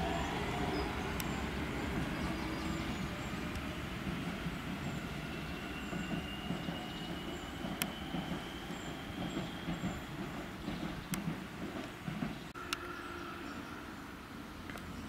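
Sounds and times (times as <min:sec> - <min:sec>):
train wheels rumbling on rails: 0:00.0 - 0:12.6.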